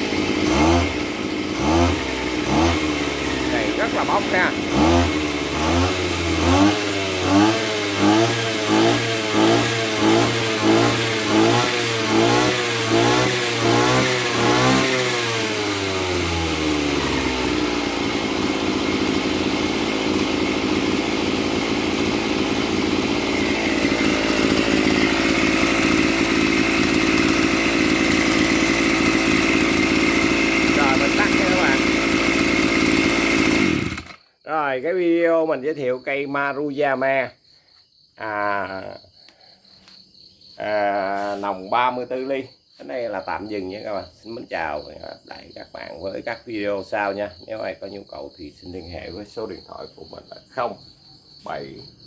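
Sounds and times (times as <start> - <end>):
brush cutter engine revving: 0.0 - 34.3, 40.6 - 42.4.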